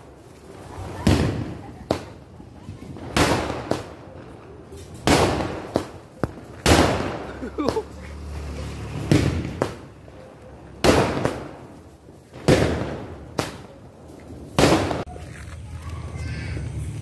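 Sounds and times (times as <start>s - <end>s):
fireworks loud bangs: 0.0s - 4.2s, 4.9s - 8.0s, 8.8s - 10.0s, 10.7s - 15.1s
small firework pops: 0.2s - 8.0s, 9.0s - 10.0s, 10.8s - 16.1s.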